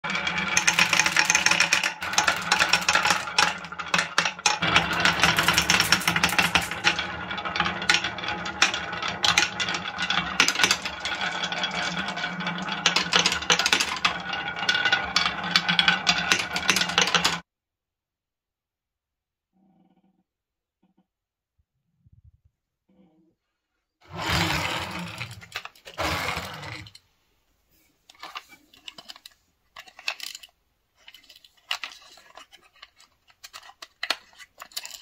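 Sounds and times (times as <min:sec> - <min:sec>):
marbles rolling on wooden tracks: 0:00.0 - 0:17.4, 0:24.0 - 0:27.0, 0:28.1 - 0:35.0.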